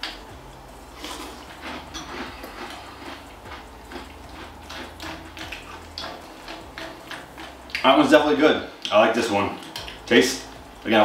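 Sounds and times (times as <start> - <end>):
person crunching cereal: 1.0 - 6.7.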